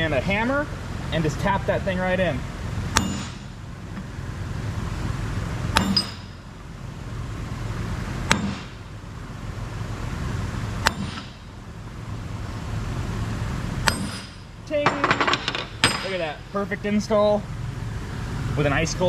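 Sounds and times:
steady low hum: 0.0s - 19.0s
hammer clanging on steel: 3.0s - 3.5s, 5.7s - 6.4s, 13.8s - 16.4s.

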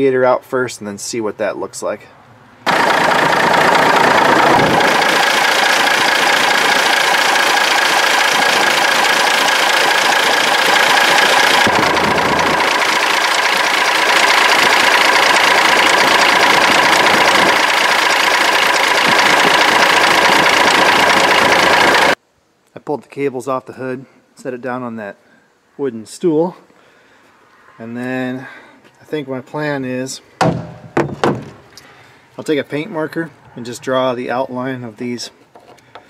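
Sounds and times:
truck diesel engine idling: 2.7s - 22.2s.

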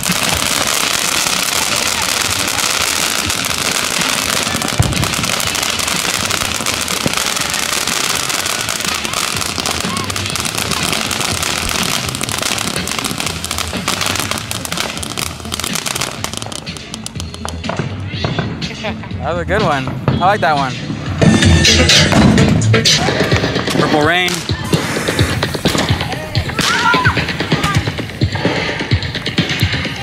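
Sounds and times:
firework fountain hissing and crackling: 0.0s - 18.9s, 22.0s - 30.0s.

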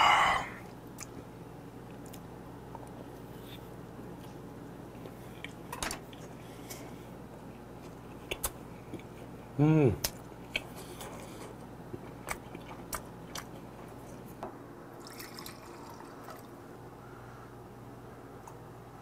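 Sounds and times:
liquid pouring into a glass: 15.0s - 16.5s.

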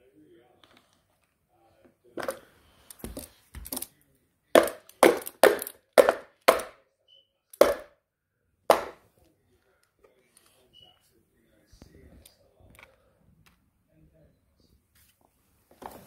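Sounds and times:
plastic toy cars knocking: 4.6s - 6.8s, 7.6s - 7.9s, 8.7s - 9.0s.

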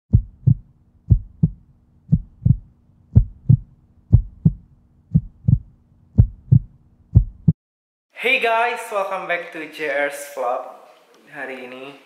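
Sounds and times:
heartbeat thumps: 0.1s - 7.6s.

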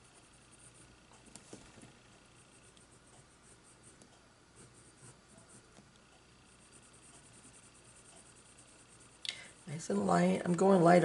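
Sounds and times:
pencil scratching on paper: 2.6s - 5.8s, 6.5s - 9.2s.

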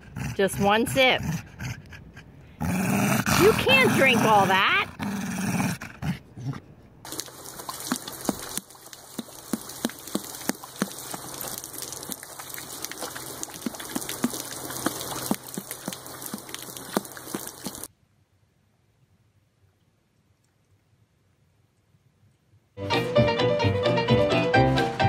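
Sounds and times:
garden hose spraying water: 7.1s - 17.9s
horse drinking splats: 7.1s - 17.9s.

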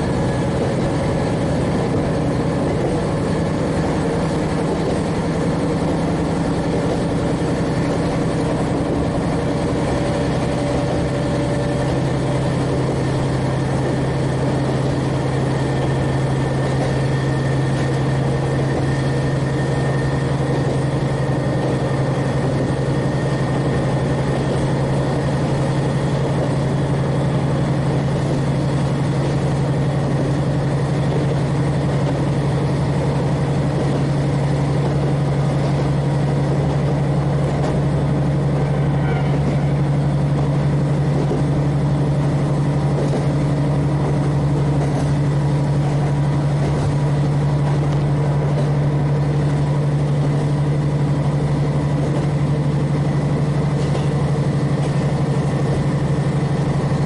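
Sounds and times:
diesel engine drone: 0.0s - 57.0s.

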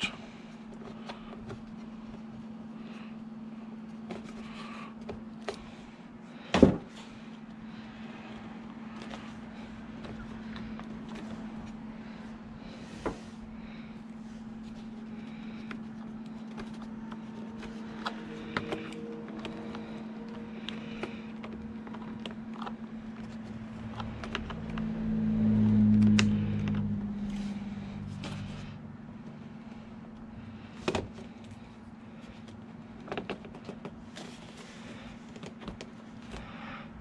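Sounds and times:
steady low hum: 0.0s - 37.0s
low rumble: 16.9s - 30.4s.

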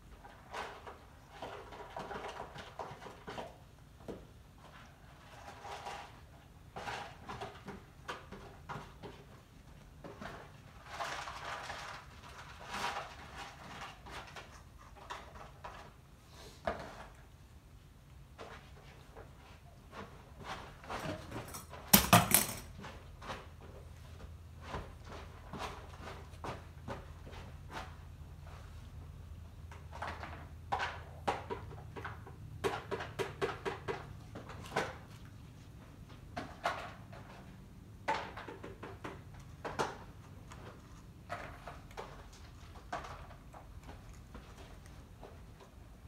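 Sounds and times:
cats crunching dry food: 0.0s - 21.8s, 29.7s - 46.0s
metal bowl clattering on tile floor: 21.4s - 22.8s.

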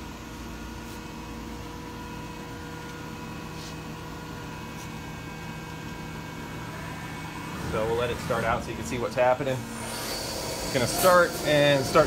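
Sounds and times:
machine humming: 1.8s - 12.0s.

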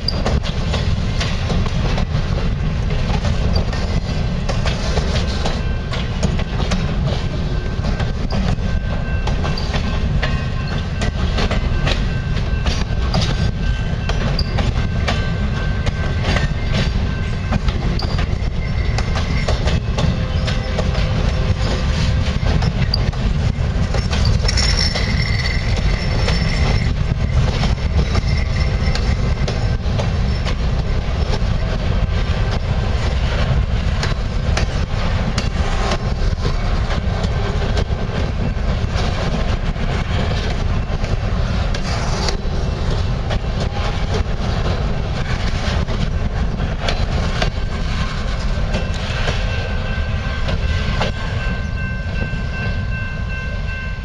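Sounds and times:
wheels clicking over rail joints: 0.0s - 49.7s
freight train rumbling past: 0.0s - 54.0s
metallic wheel squeal: 8.2s - 11.0s, 11.7s - 31.4s.

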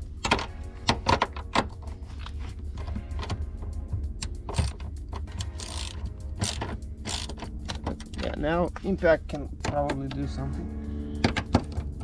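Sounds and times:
faint background music: 0.0s - 12.0s
ratchet metallic clicks: 2.8s - 8.4s.

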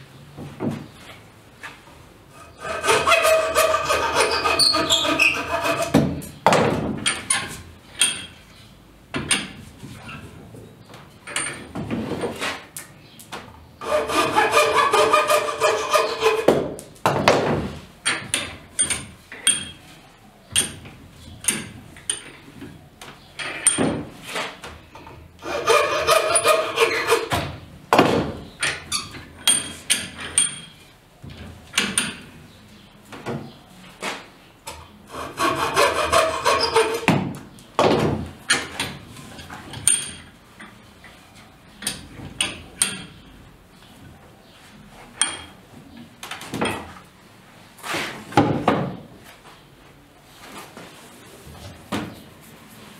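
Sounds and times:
hand saw sawing wood: 2.4s - 6.1s, 13.8s - 16.6s, 25.4s - 27.4s, 35.1s - 37.1s
knocks and clicks of wood and tools: 2.9s - 8.4s, 9.1s - 10.0s, 10.9s - 19.8s, 20.5s - 25.2s, 26.1s - 32.3s, 34.1s - 40.8s.

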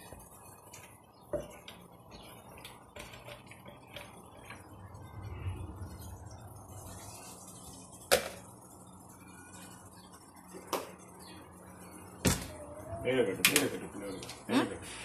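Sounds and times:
utensils and dishes clicking: 0.6s - 4.7s.

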